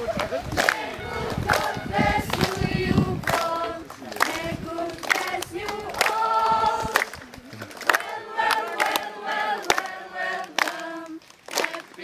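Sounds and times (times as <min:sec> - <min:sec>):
children singing in unison: 0:00.7 - 0:07.1, 0:08.0 - 0:12.0
hand claps: 0:03.2 - 0:12.0.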